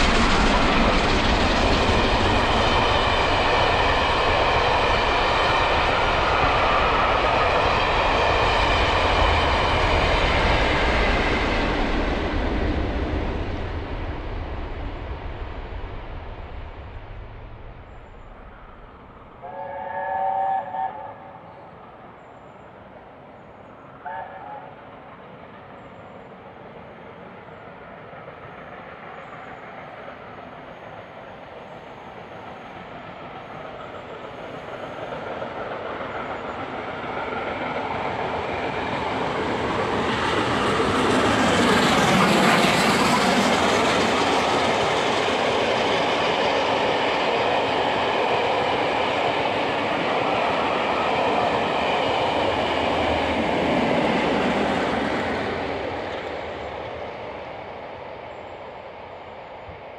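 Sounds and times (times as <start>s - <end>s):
train passing: 0.0s - 59.9s
steam locomotive chime whistle: 19.4s - 21.4s, 24.0s - 24.8s.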